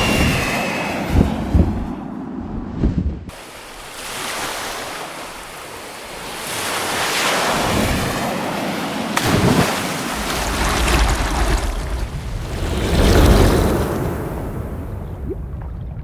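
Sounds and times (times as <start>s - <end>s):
ocean surf: 0.0s - 2.4s, 3.3s - 15.0s
deep rumble: 0.0s - 3.3s
rushing wind: 0.0s - 4.1s, 5.5s - 15.6s.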